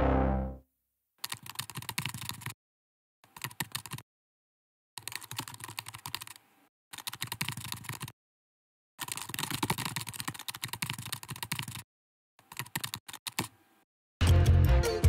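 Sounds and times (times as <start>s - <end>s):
synth music sting: 0.0s - 0.6s
computer keyboard typing: 1.2s - 2.6s, 3.2s - 4.0s, 5.0s - 8.2s, 9.0s - 11.8s, 12.4s - 13.6s.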